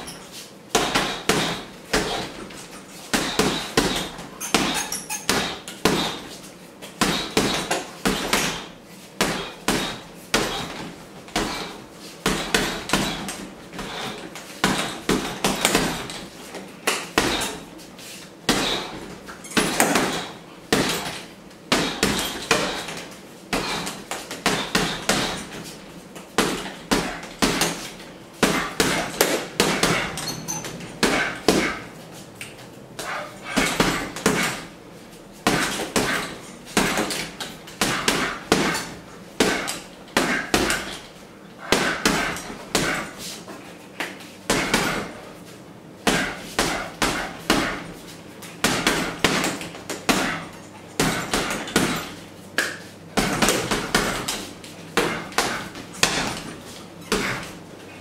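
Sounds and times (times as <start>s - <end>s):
boxing gloves punching heavy bag: 0.0s - 17.8s, 18.4s - 32.0s, 33.0s - 45.3s, 46.0s - 57.7s.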